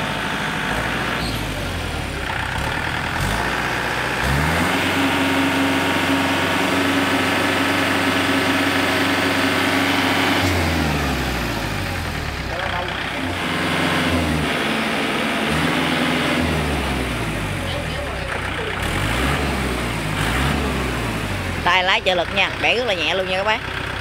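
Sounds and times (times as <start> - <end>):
tractor diesel engine revving: 0.0 - 24.0.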